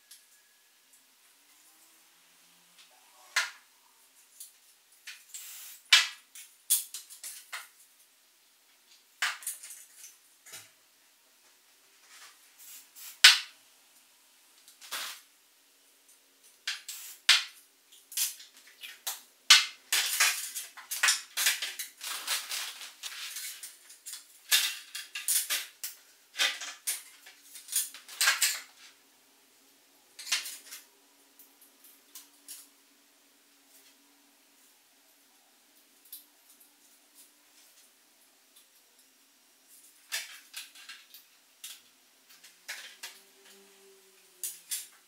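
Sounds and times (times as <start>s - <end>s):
plastic parts clicking and crackling: 8.8s - 10.8s, 14.6s - 15.3s, 16.1s - 29.0s, 30.2s - 32.7s, 39.7s - 45.0s.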